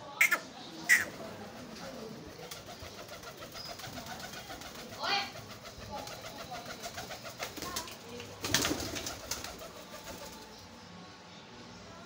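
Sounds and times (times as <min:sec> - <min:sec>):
pigeon wings flapping: 0:01.4 - 0:10.5.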